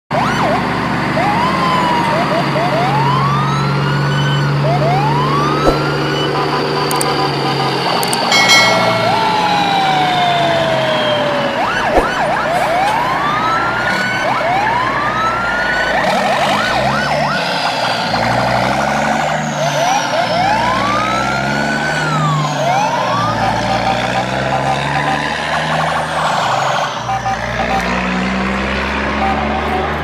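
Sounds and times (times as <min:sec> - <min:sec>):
siren wailing and yelping: 0:00.2 - 0:28.2
low engine drone: 0:04.6 - 0:13.4.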